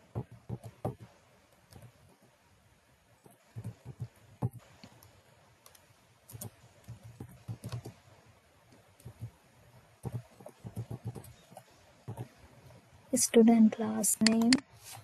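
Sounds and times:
keyboard typing: 0.0 - 1.1, 3.2 - 8.0, 8.7 - 9.4, 10.0 - 12.4, 14.2 - 14.6.

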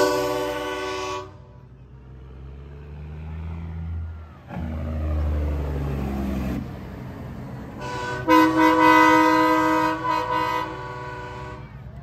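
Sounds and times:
truck air horn chord: 0.0 - 1.6, 7.8 - 11.8
truck diesel engine passing: 0.0 - 12.0.

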